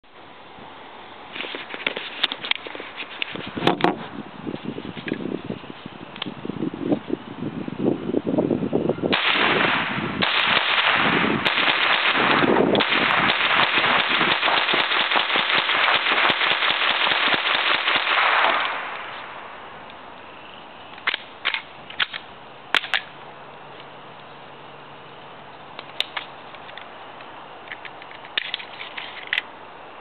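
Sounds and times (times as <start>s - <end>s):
rifle gunshots: 9.1s - 19.0s
rifle handling clicks: 21.0s - 23.1s, 25.8s - 29.5s.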